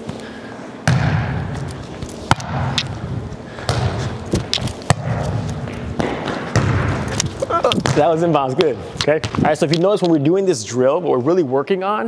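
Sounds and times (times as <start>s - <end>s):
volleyball thumping: 0.8s - 9.6s.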